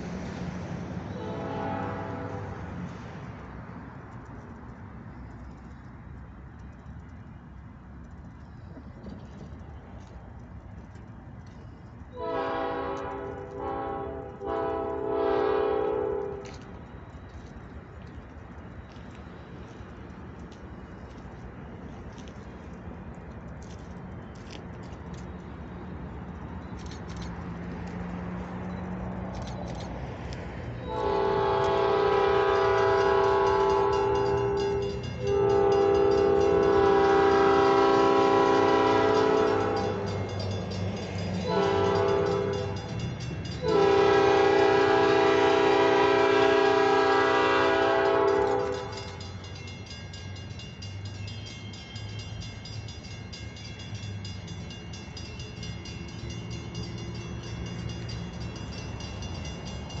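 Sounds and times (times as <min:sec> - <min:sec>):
train rumbling: 0:00.0 - 1:00.0
locomotive horn blasts: 0:01.1 - 0:02.7, 0:12.1 - 0:16.7, 0:30.8 - 0:40.3, 0:41.4 - 0:49.3.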